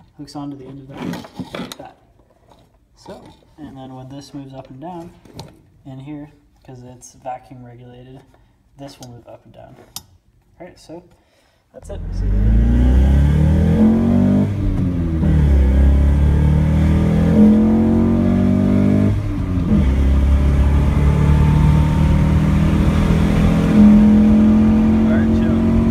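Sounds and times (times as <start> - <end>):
car engine accelerating: 11.8 - 25.9.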